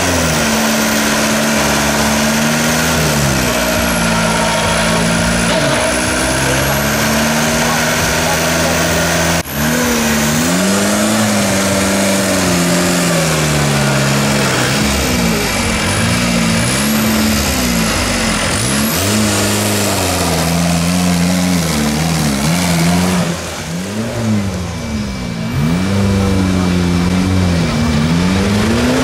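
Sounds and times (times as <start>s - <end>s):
buggy engine revving: 0.0s - 29.0s.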